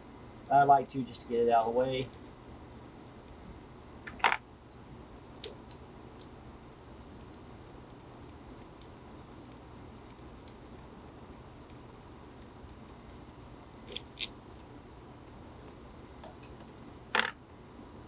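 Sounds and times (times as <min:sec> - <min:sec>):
faint low hum: 0:00.0 - 0:18.0
tools and parts clicking: 0:17.2 - 0:17.4.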